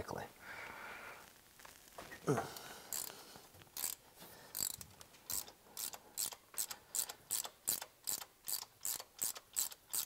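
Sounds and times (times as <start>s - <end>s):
socket ratchet clicking: 2.9s - 3.1s, 3.8s - 10.0s.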